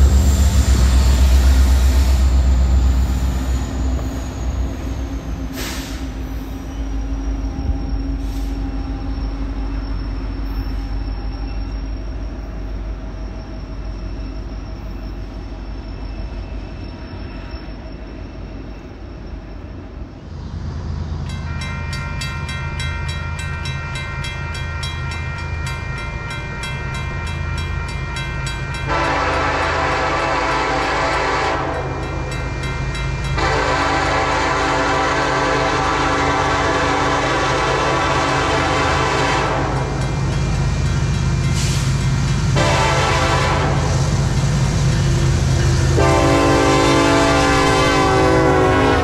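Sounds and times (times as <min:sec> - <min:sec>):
high wheel squeal: 0:00.0 - 0:20.4, 0:21.3 - 0:43.0
locomotive engine rumble: 0:00.0 - 0:49.0
train cars rumbling past: 0:00.0 - 0:49.0
locomotive horn: 0:26.9 - 0:40.2, 0:42.4 - 0:44.3, 0:45.3 - 0:49.0.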